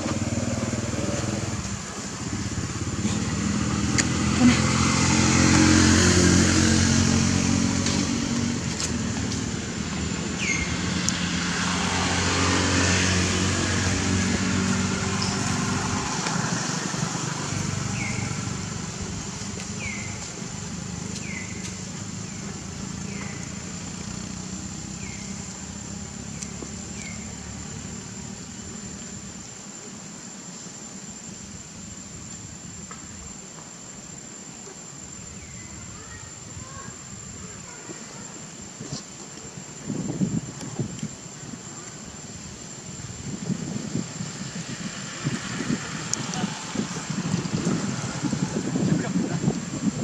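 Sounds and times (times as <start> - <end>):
vehicle engine running: 0.0 - 29.4.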